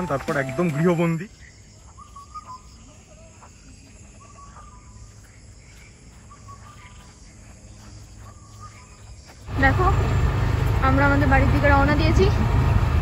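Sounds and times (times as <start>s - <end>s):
bird calling: 0.0s - 9.2s
insects trilling: 0.4s - 9.9s.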